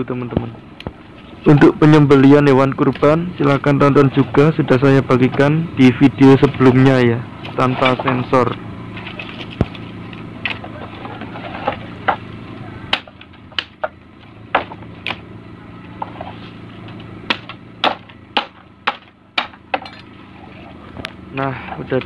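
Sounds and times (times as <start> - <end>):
machete chopping dry sticks: 12.9 - 15.3, 16.0 - 20.0.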